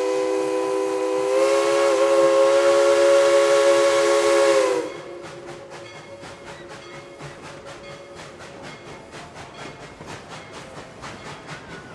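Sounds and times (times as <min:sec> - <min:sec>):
steam whistle chord: 0:00.0 - 0:05.5
steam hiss: 0:00.0 - 0:11.9
train chugging beat: 0:00.0 - 0:11.9.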